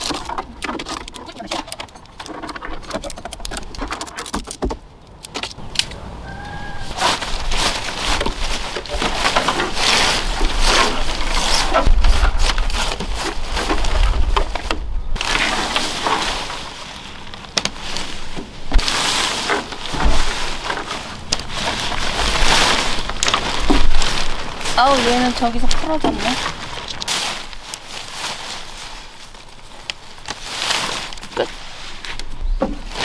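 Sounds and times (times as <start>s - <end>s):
tent fabric rustling: 6.6s - 33.0s.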